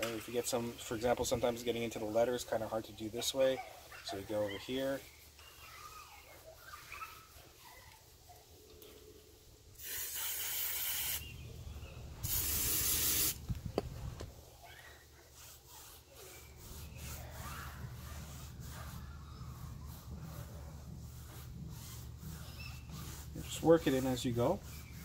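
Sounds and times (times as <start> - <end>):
aerosol spray hissing: 9.8 - 11.2, 12.2 - 13.5
pad rubbing on tire: 12.3 - 25.0.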